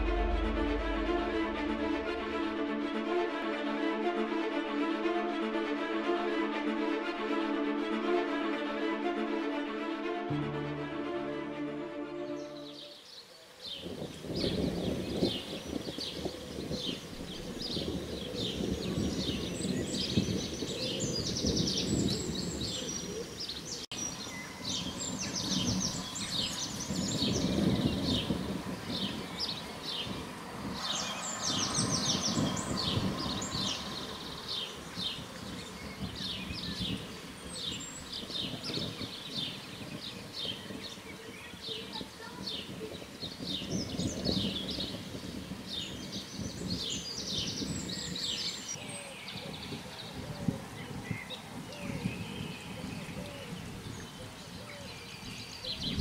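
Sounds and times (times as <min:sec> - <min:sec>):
low uneven rumble: 0:00.0 - 0:04.3
songbirds singing and chirping: 0:05.0 - 0:56.0.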